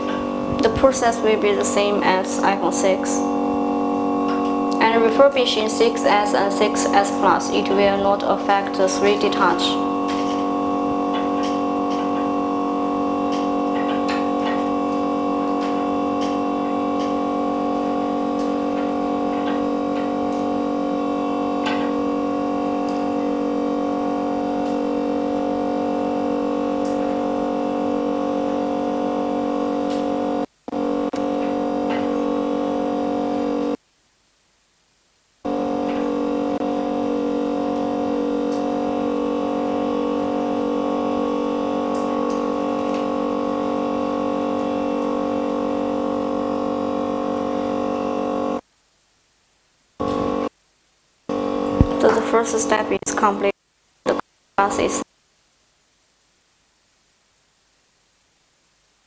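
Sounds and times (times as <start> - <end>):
sustained synthesizer chord: 0.0 - 33.8, 35.5 - 48.6.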